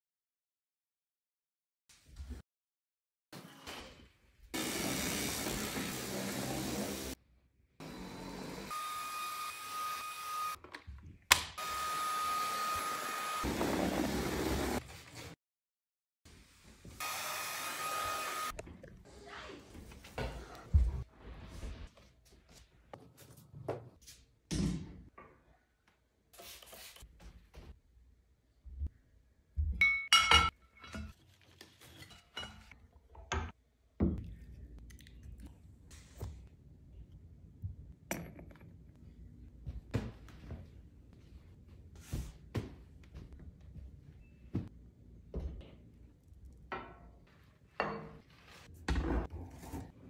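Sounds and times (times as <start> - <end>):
objects clinking on a glass table: 29.8 - 31.1.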